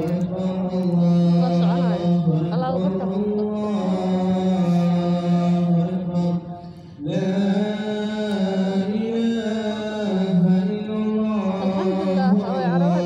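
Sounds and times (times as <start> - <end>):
person singing chant-like melody: 0.0 - 13.0.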